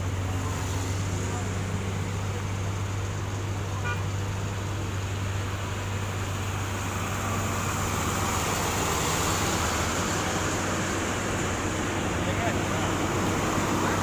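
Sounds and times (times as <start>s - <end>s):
road traffic hum: 0.0s - 14.0s.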